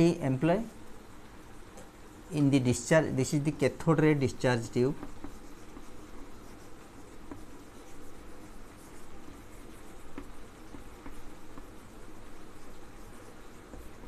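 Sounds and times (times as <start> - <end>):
low room hum: 0.0 - 14.0
chalk scratching on chalkboard: 4.3 - 14.0
chalk taps: 4.6 - 14.0.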